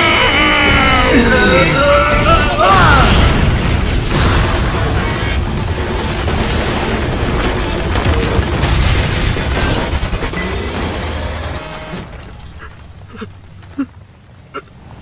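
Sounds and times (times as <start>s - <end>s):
crumbling debris: 1.9s - 15.0s
explosion rumble: 2.9s - 11.0s.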